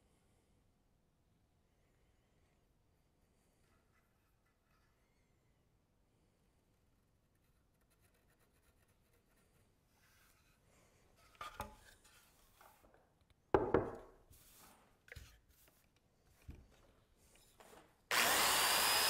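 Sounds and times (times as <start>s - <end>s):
wood knocking on wood: 13.6s - 14.2s
wooden thump: 13.6s - 14.2s.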